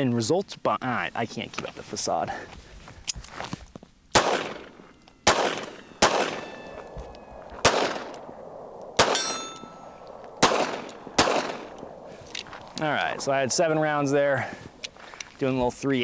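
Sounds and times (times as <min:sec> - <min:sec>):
pistol shots cracking: 0:04.1 - 0:12.5
thin metallic ringing: 0:04.8 - 0:07.6, 0:09.1 - 0:10.0.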